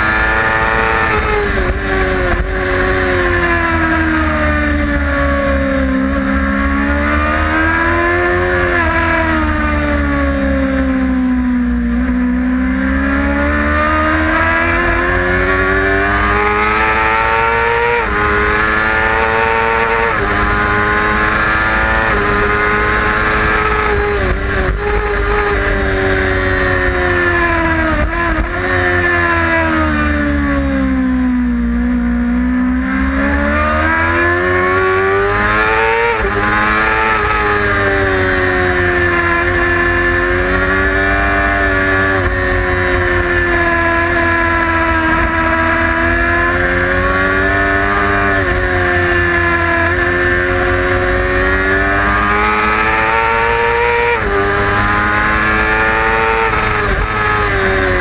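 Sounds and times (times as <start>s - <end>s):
racing motorcycle engine revving: 0.0s - 58.0s
wind rush on microphone: 22.0s - 28.8s.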